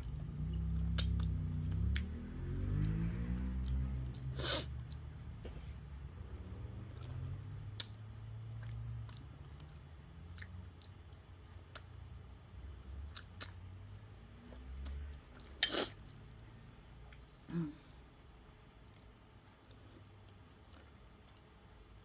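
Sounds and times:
person chewing noodles: 0.0s - 6.0s, 6.9s - 13.7s, 14.4s - 16.3s, 18.8s - 22.0s
wet mouth clicks: 0.9s - 2.1s.

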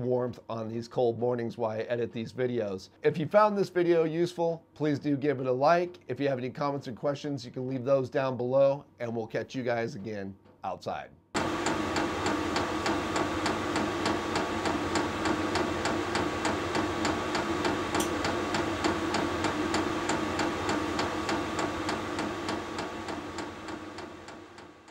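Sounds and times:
fuel pump ticking: 11.4s - 24.9s
heater blower and burner hum: 11.4s - 24.9s.

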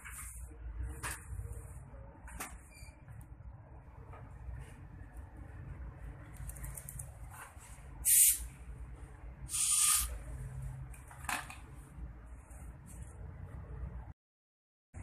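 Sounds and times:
air syringe hissing: 8.0s - 8.5s, 9.5s - 10.2s.

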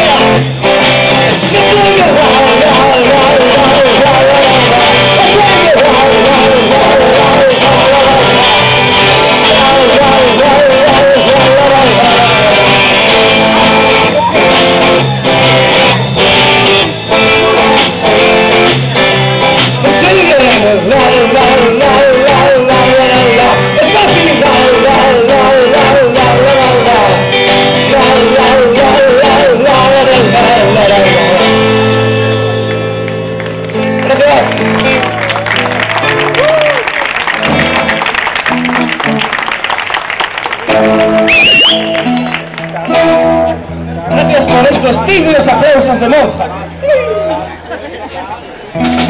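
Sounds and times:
person singing: 0.0s - 15.1s, 19.8s - 32.2s
guitar playing: 0.0s - 39.7s, 40.5s - 47.9s, 48.6s - 49.0s.

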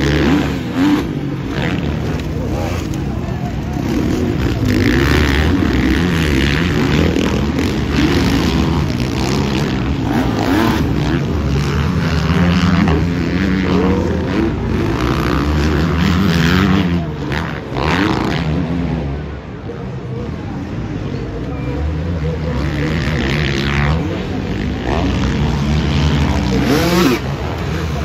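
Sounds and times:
motocross bikes racing: 0.0s - 28.0s.

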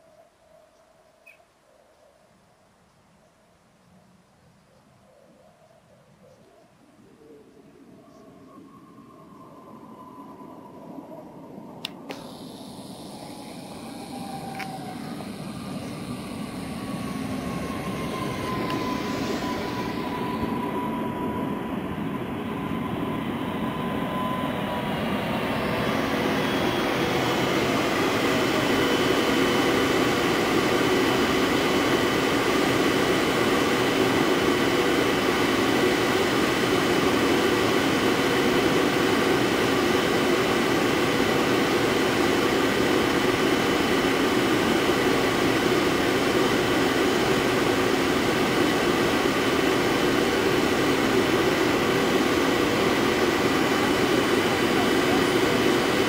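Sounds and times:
train equipment hum and whine: 7.0s - 56.0s
hiss: 12.0s - 21.1s.

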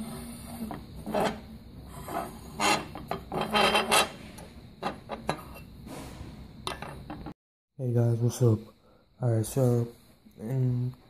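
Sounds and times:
metal phone holder scraping tabletop: 0.0s - 7.3s.

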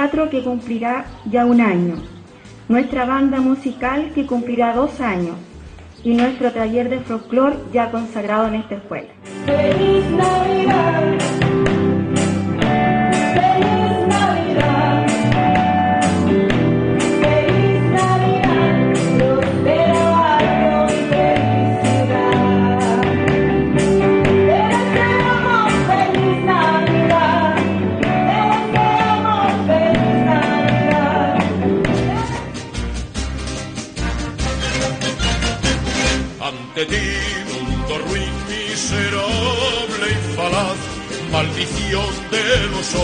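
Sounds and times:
live band with drums and guitar: 7.6s - 43.0s
woman singing into microphone: 9.4s - 11.4s, 13.2s - 15.6s, 17.0s - 23.2s, 24.4s - 32.6s.

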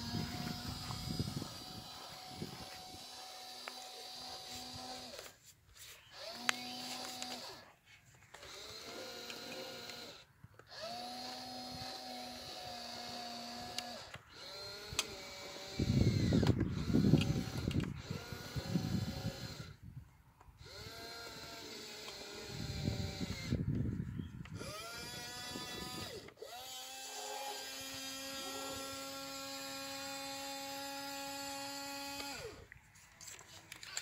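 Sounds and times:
small electric motors whining: 0.0s - 34.0s
rough rustling noise: 4.2s - 8.5s.

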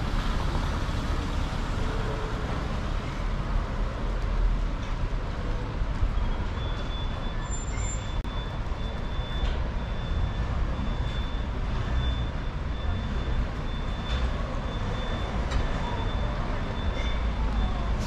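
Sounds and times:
low rumble of vehicle engines: 0.0s - 18.0s.

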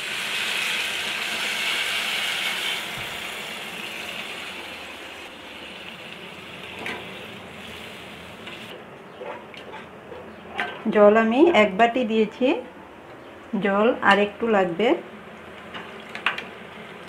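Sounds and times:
water hissing in hot oil: 0.0s - 8.7s.

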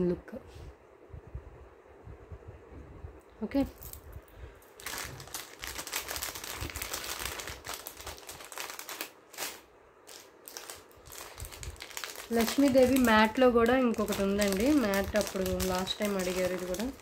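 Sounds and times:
packaging crinkling and rustling: 4.6s - 17.0s.

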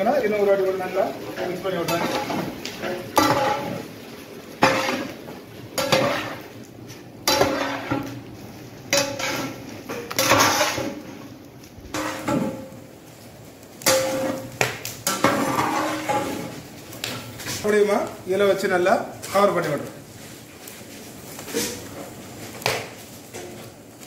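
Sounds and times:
metal ladle scraping a pot: 5.8s - 6.5s, 7.3s - 8.1s, 8.9s - 11.1s, 15.2s - 16.5s.

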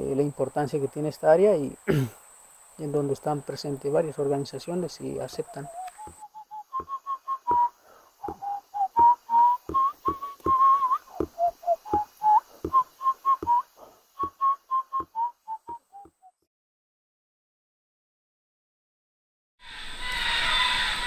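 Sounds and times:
person whistling a tune: 5.4s - 16.3s.

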